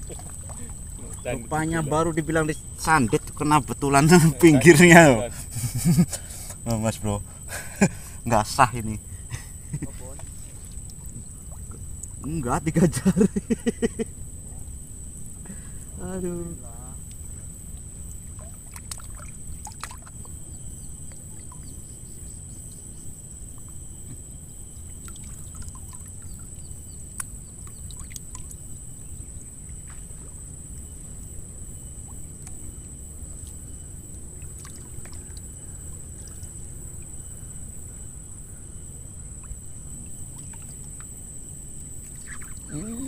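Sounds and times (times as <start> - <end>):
small waves lapping: 0.0 - 8.3, 18.1 - 20.4, 34.3 - 37.2, 41.9 - 43.0.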